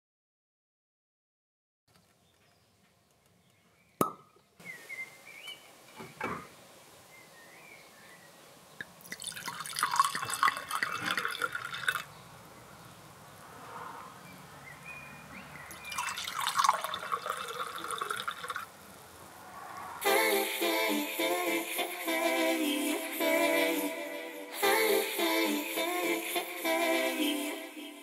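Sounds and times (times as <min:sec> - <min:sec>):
drink foaming: 0:09.0 - 0:12.1, 0:15.8 - 0:18.7
drink pouring into glass: 0:09.0 - 0:12.1, 0:15.7 - 0:18.7.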